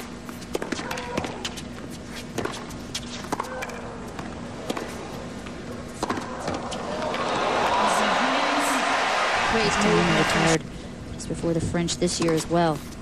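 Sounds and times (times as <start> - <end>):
racquet hitting tennis ball: 2.3 - 5.0, 5.9 - 7.5.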